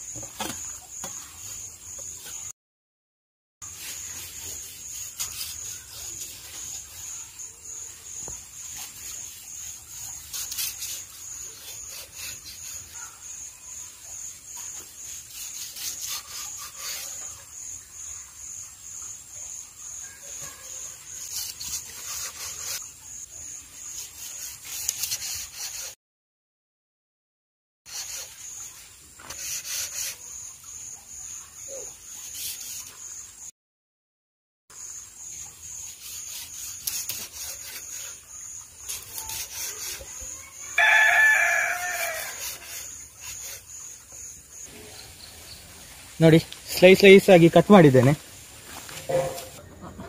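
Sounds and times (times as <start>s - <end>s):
knife sawing through fish: 3.7s - 6.9s, 8.7s - 13.1s, 14.8s - 17.4s, 21.1s - 22.8s, 23.9s - 26.0s, 27.9s - 30.3s, 32.2s - 33.0s, 35.9s - 40.4s, 41.4s - 43.9s.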